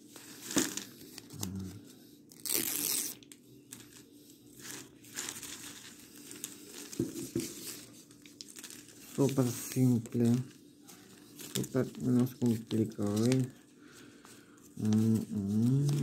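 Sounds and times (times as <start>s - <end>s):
plastic ribbon crinkling: 2.3s - 13.6s, 14.8s - 16.0s.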